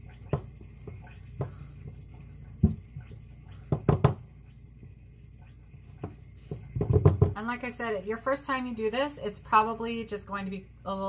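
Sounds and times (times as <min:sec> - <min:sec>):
spatula knocking and scraping pans: 0:03.7 - 0:04.2.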